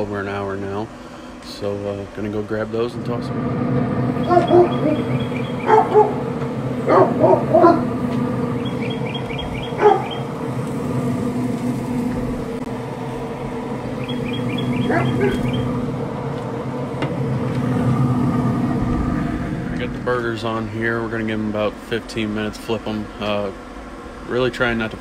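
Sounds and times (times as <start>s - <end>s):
grill fan humming: 0.0s - 25.0s
dog barking: 4.2s - 6.2s, 6.9s - 7.9s, 9.8s - 10.2s, 14.8s - 15.6s.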